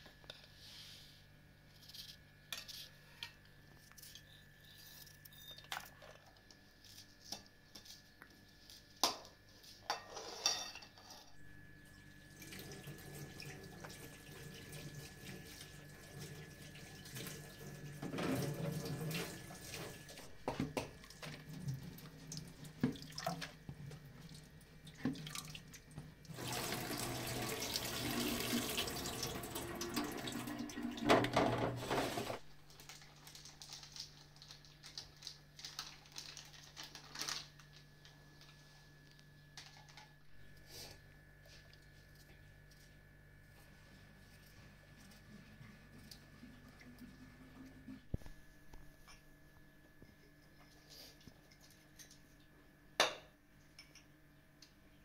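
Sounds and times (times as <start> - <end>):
kitchen clicks and knocks: 31.0 - 32.4.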